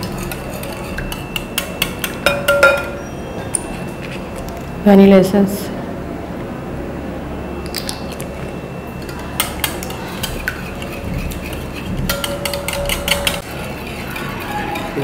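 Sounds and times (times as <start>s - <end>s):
whisk clicking against glass bowl: 9.4s - 13.4s.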